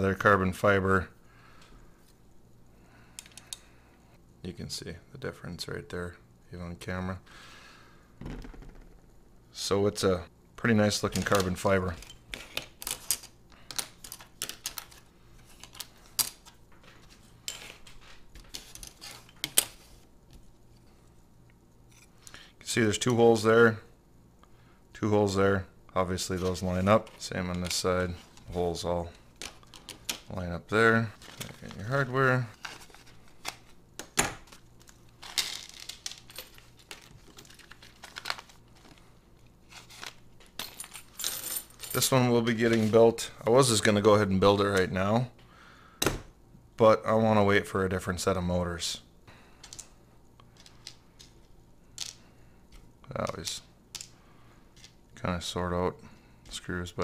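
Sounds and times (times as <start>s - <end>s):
plastic bag crinkling: 35.8s - 39.1s.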